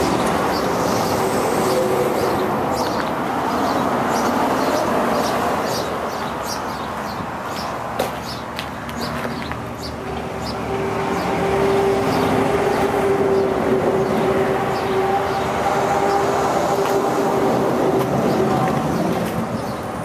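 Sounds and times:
birds chirping: 0.0 - 11.4.

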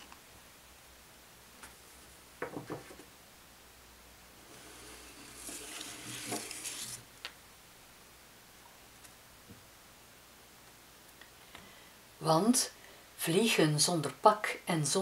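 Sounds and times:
papery card rubbing: 4.5 - 7.0.

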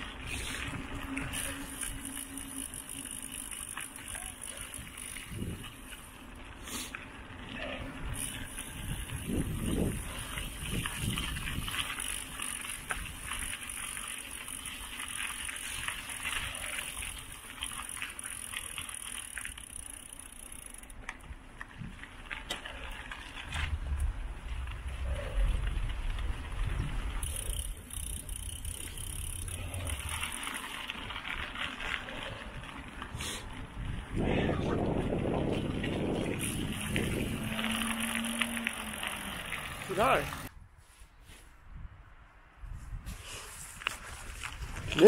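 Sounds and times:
bike tyres rolling over path: 0.0 - 40.5, 43.0 - 45.0
small clicks and rattles: 25.8 - 33.1.

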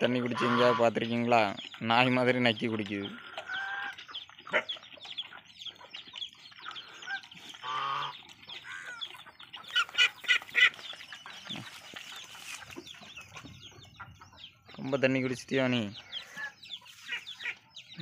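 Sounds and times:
horse lapping water: 0.0 - 14.3
poultry clucking: 0.0 - 18.0.

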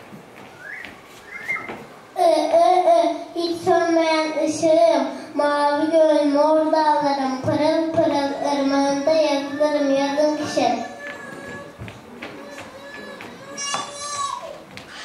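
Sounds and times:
child singing: 2.2 - 11.7.

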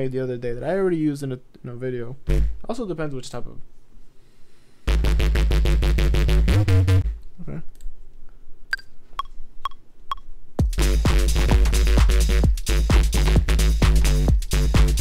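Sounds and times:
bass house loop: 4.9 - 7.2, 10.6 - 15.0.

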